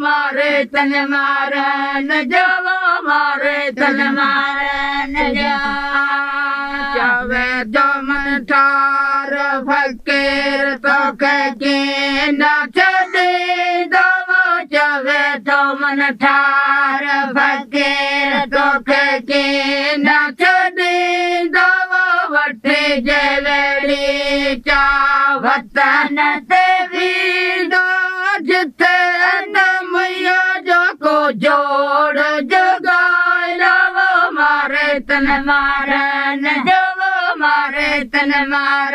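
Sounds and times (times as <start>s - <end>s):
women singing folk song: 0.0s - 38.9s.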